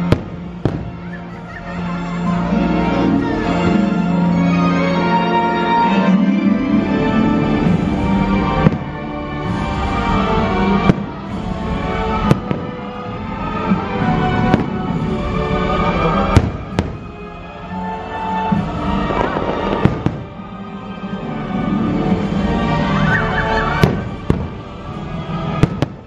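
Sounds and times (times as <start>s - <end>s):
fireworks bursting: 0.0s - 2.0s, 7.8s - 17.2s, 18.2s - 20.6s, 22.9s - 26.0s
soundtrack music: 0.0s - 26.0s.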